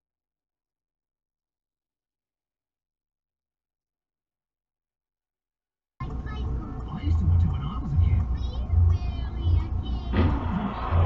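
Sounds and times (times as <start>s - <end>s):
rushing noise: 10.0s - 11.0s.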